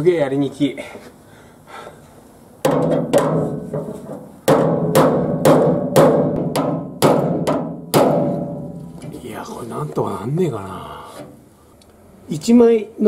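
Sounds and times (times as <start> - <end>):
hammer striking sheet metal: 2.6 - 9.1.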